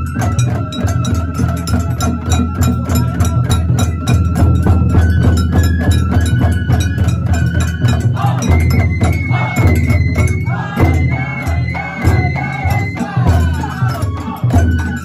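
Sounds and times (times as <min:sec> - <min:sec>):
bamboo flute: 0:00.0 - 0:15.0
drums and metal bell strokes: 0:00.0 - 0:15.0
deep drum beat: 0:07.3 - 0:15.0
voices singing: 0:08.0 - 0:15.0.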